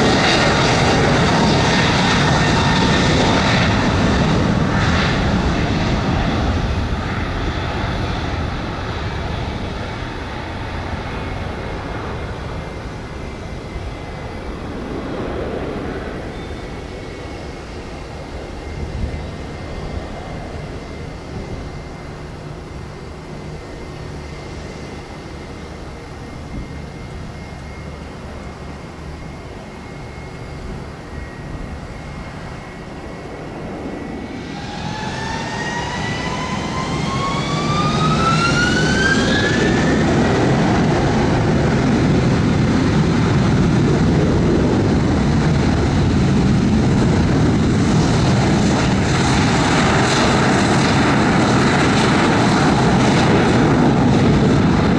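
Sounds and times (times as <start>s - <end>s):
faint high whine: 0.0s - 54.9s
jet engines spooling up: 0.0s - 54.9s.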